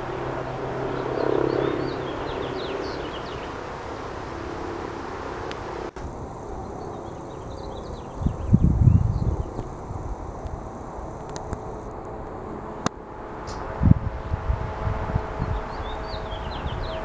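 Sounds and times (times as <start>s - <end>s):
bee swarm buzzing: 0.0s - 17.0s
bird chirps: 0.9s - 3.6s, 6.6s - 9.6s, 15.4s - 17.0s.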